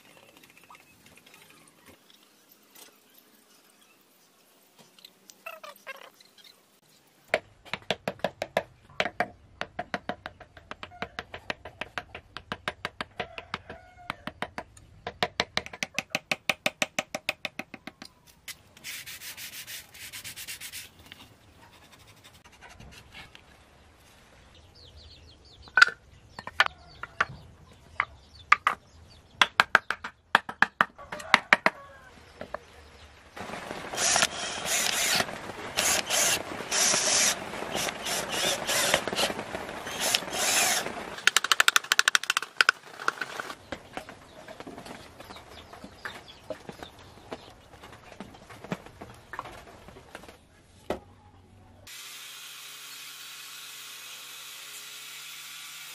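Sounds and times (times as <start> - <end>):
rubbing and scraping on wood: 18.8 - 23.4.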